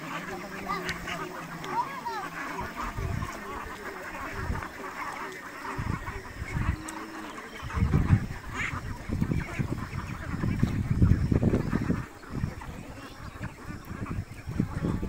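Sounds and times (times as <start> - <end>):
ducks quacking: 0.0 - 15.0.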